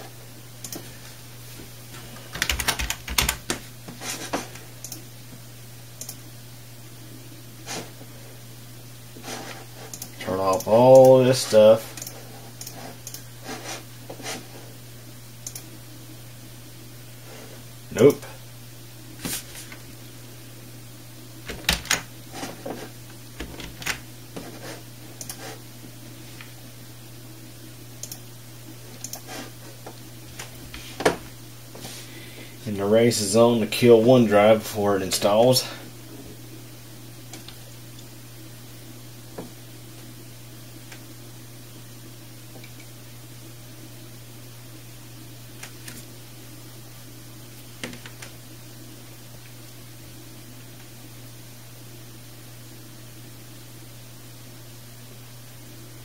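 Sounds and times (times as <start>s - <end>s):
low steady hum: 0.0s - 56.0s
typing on computer keyboard: 2.3s - 3.6s.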